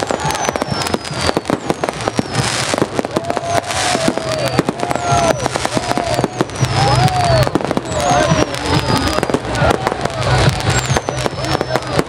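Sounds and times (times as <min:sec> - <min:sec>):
firework hisses: 0:00.0 - 0:12.0
firework whistles gliding down: 0:00.0 - 0:12.0
fireworks bangs and crackling: 0:00.0 - 0:12.0.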